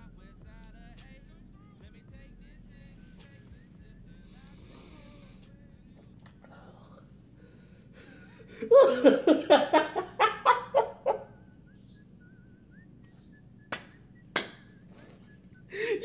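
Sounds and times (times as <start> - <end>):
man laughing: 8.0 - 11.9, 14.8 - 16.0
sharp slaps: 13.7 - 14.7.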